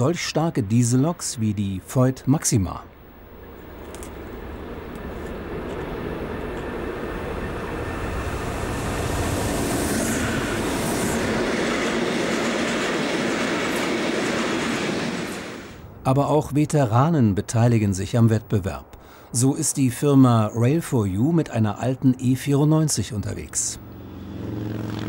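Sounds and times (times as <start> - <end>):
locomotive engine passing: 2.8 - 15.9, 21.7 - 25.0
train wheels rolling on track: 3.4 - 15.8.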